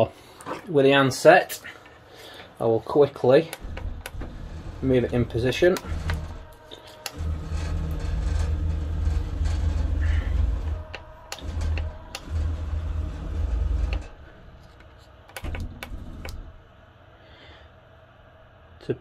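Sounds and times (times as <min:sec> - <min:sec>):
stepper motors humming: 0:03.5 - 0:16.8.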